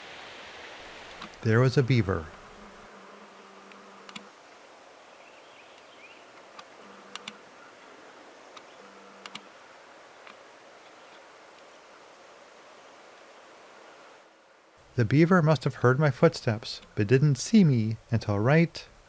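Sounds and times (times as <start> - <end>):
soft steady hiss: 0.0 - 19.0
sharp clicks: 3.7 - 4.3, 6.4 - 7.4, 8.6 - 9.5.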